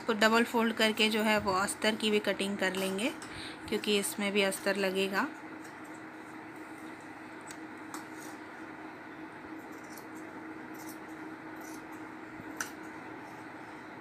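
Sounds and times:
faint hiss and hum: 0.0 - 14.0
scissors snipping fabric: 9.7 - 12.9.

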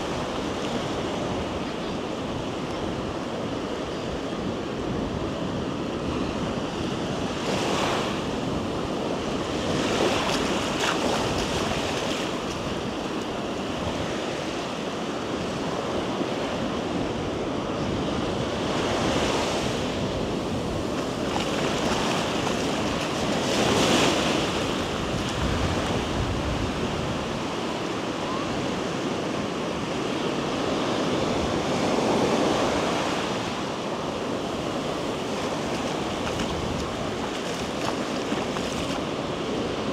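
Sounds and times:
ocean waves breaking on beach: 0.0 - 39.9
wind on microphone: 0.0 - 39.9.

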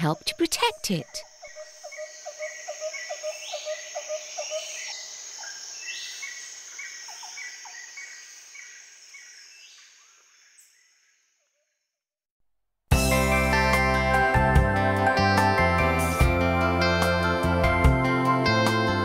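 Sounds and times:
high insect drone: 0.1 - 10.7.

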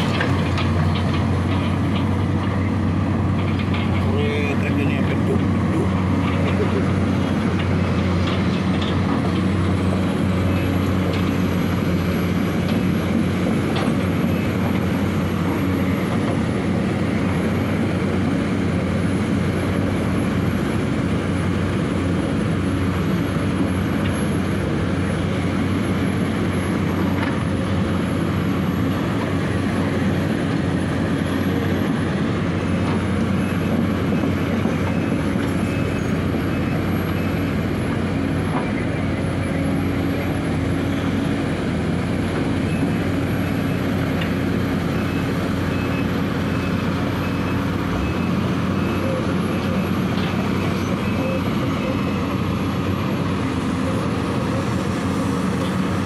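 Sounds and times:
excavator diesel engine running: 0.0 - 56.0.

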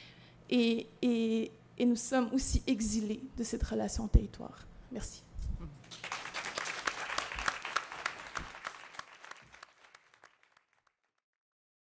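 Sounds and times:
audience applauding: 5.9 - 10.9.

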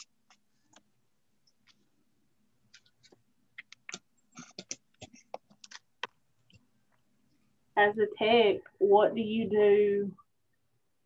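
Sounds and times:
faint clicks and taps: 0.0 - 2.0, 2.6 - 7.5.

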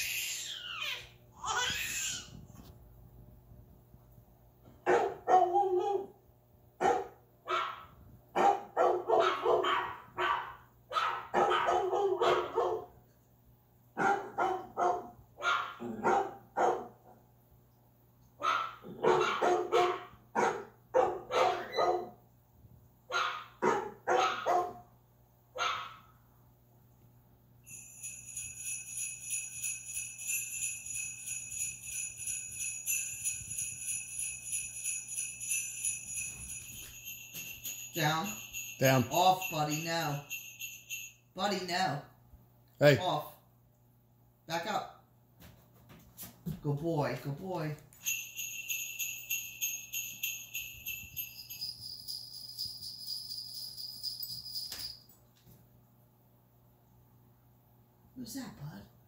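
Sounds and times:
jingle bells shaken: 27.6 - 41.8, 47.9 - 55.2.

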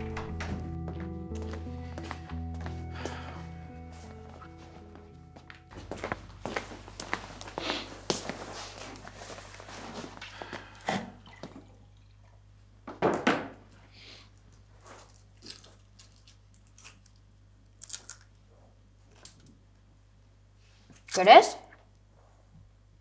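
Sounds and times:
jacket rustling: 1.4 - 10.7
wrapper crinkling: 14.8 - 18.4.

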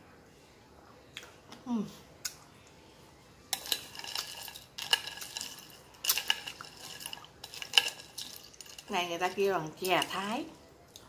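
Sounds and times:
spoon clinking ice and glass: 3.5 - 10.3.

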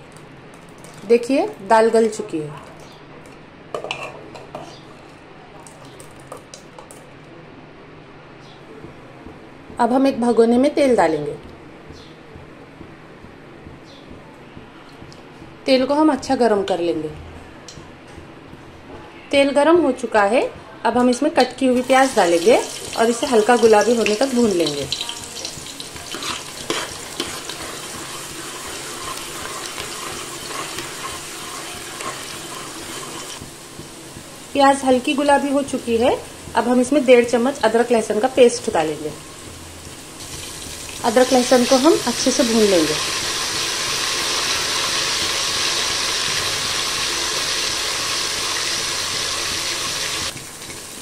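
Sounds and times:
onions sizzling in oil: 21.4 - 51.0
ladle stirring in metal pot: 23.6 - 33.4.

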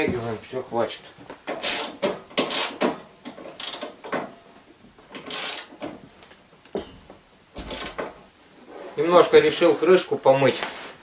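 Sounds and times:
ratchet wrench rasping: 1.6 - 2.8, 3.6 - 4.0, 5.3 - 5.7.

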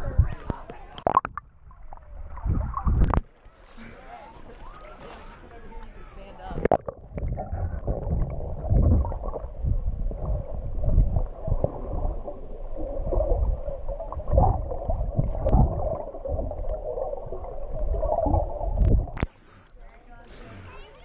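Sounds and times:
muffled underwater water movement: 0.0 - 21.0
irregular low thumps: 6.6 - 19.2.

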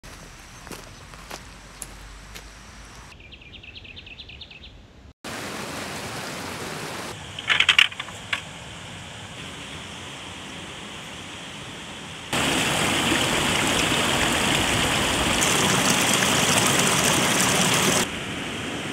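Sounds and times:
stream rushing over boulders: 5.3 - 7.2, 12.3 - 18.3.

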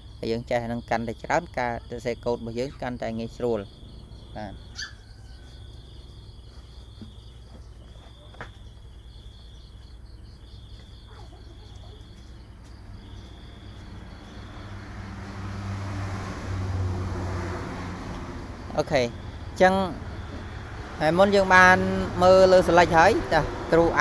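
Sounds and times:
crickets trilling: 0.0 - 24.0
passing vehicle rumble: 1.0 - 7.8, 12.3 - 24.0.

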